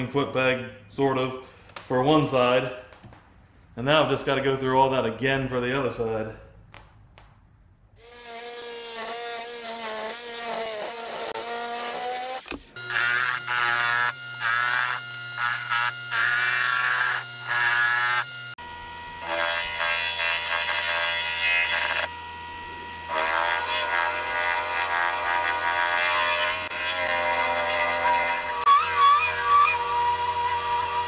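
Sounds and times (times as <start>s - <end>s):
metal lathe motor buzzing: 8.0s - 31.0s.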